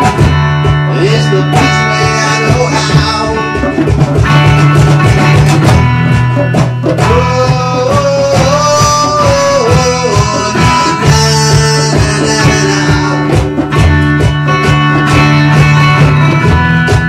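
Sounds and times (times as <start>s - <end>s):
acoustic guitar strumming chords: 0.0s - 17.0s
hand drum beat: 0.0s - 17.0s.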